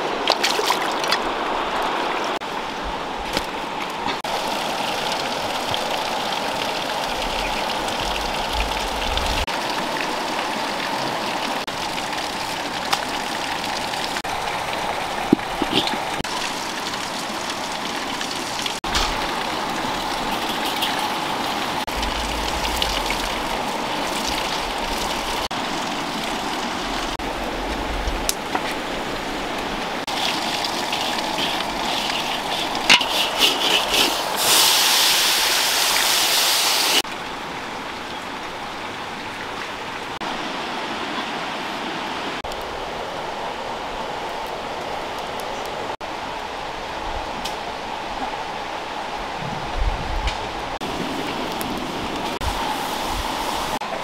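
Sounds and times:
river rushing: 0.0s - 49.8s
food sizzling in hot wok: 30.1s - 37.0s.

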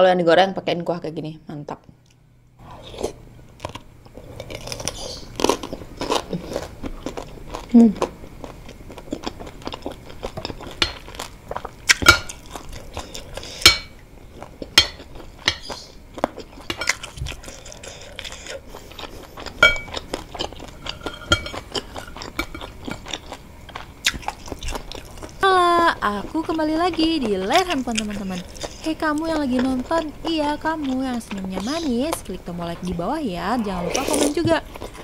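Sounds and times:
person chewing: 2.0s - 33.0s, 33.6s - 35.0s
metal spoon clinking on bowl: 19.6s - 20.0s, 20.9s - 21.6s.

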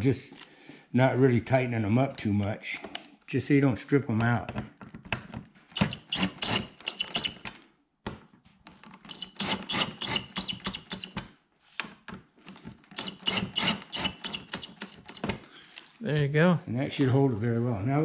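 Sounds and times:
cordless drill driving screws: 5.7s - 7.6s, 8.9s - 11.2s, 12.8s - 15.5s
drill clutch clicking: 12.9s - 15.3s.

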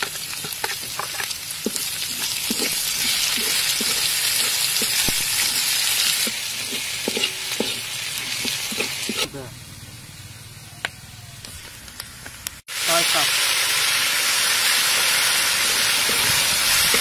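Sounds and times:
metal spatula scraping pan: 0.0s - 9.3s
food sizzling in hot oil: 0.0s - 9.7s, 11.9s - 17.0s.

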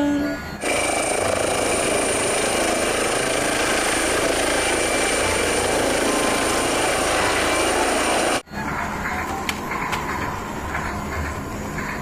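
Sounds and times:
helicopter: 0.6s - 8.4s.

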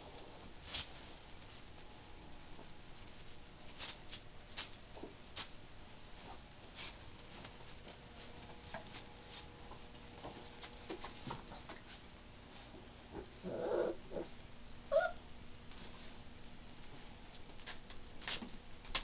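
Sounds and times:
puppy paws scuffling on blanket: 0.2s - 13.9s, 15.7s - 19.0s
puppy vocalization: 13.2s - 15.2s
puppy yipping: 14.9s - 15.2s.

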